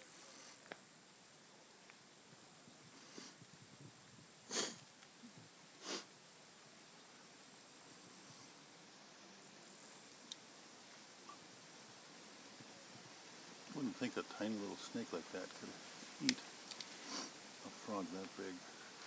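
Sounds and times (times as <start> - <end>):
high-pitched insect chorus: 0.0 - 19.0
short breathy puffs: 3.0 - 3.4, 4.5 - 4.8, 5.8 - 6.1, 16.7 - 17.4.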